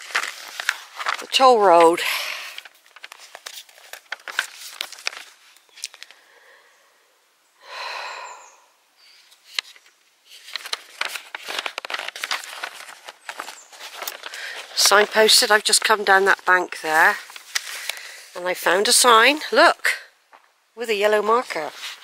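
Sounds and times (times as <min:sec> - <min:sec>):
footsteps crunching on leaves: 0:00.0 - 0:01.5, 0:10.3 - 0:15.5
breathy exhale: 0:06.1 - 0:08.8.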